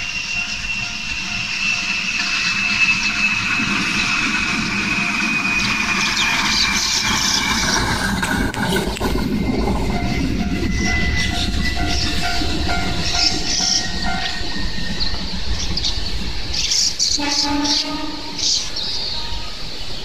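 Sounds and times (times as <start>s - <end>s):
crossing warning bell ringing: 0.0s - 7.3s, 8.2s - 15.2s
train wheels clattering on rails: 0.0s - 19.8s.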